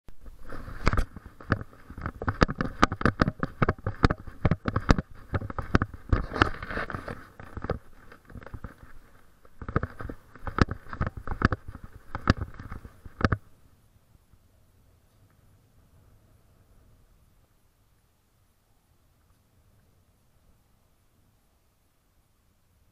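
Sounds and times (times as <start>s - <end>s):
camera handling rattle: 0.6s - 13.5s.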